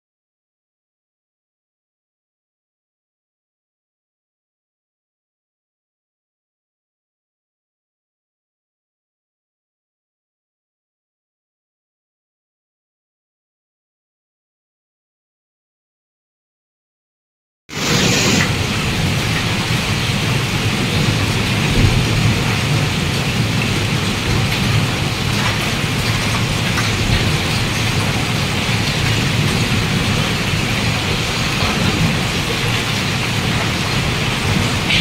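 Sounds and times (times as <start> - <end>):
hail and rain pelting down: 17.8 - 35.0.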